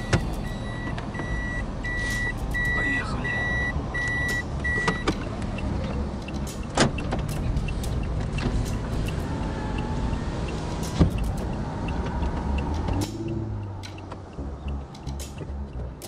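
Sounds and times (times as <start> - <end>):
reverse warning beeps: 0.0 - 5.2.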